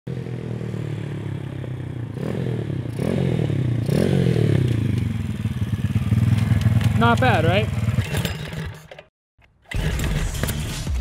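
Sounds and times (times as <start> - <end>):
mini bike engine revving: 2.1 - 8.9, 9.7 - 10.4.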